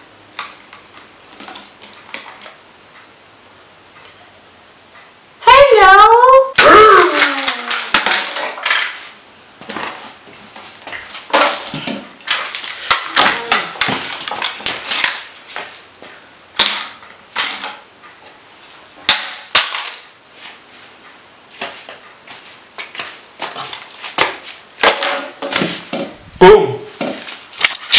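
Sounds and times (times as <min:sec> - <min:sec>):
plastic toys clattering on wood: 0:07.2 - 0:09.0.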